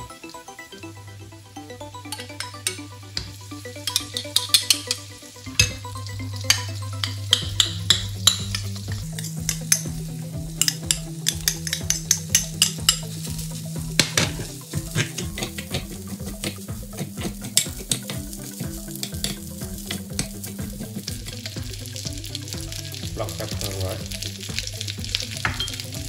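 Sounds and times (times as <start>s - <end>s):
oil sizzling: 0.0s - 26.0s
metal spoon scraping frying pan: 6.4s - 13.4s, 14.0s - 20.4s.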